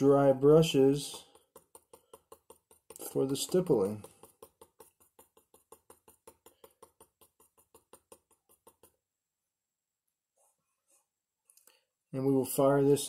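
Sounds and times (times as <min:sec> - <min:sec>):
brush tapping on glass: 0:00.0 - 0:09.0.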